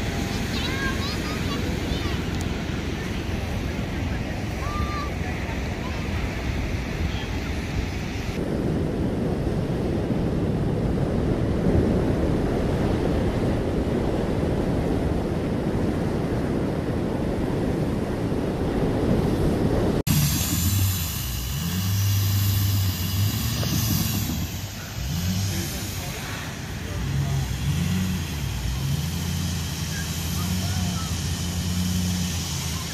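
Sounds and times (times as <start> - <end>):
surf: 0.0 - 32.9
wind rumbling on microphone: 0.0 - 32.9
diesel pickup engine revving: 20.0 - 32.9.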